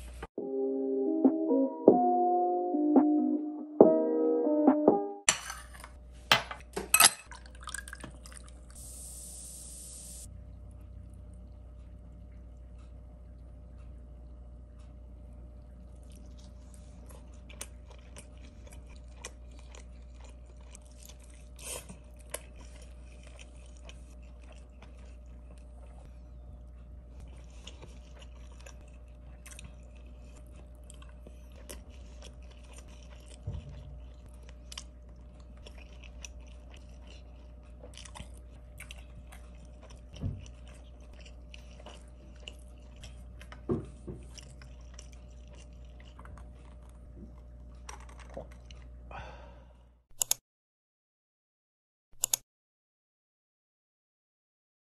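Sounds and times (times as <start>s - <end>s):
steady low hum: 5.3s - 50.0s
chewing and biting food: 10.6s - 49.1s.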